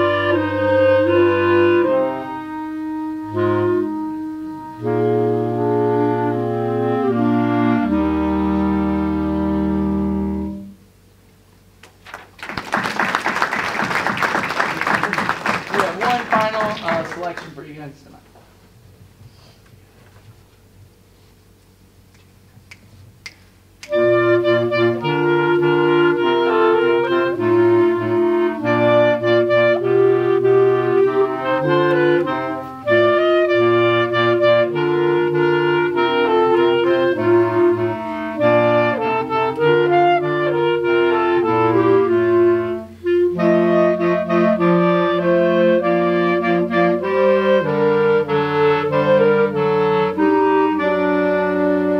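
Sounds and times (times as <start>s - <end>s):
clarinet choir playing chords: 0.0s - 10.9s, 23.8s - 51.9s.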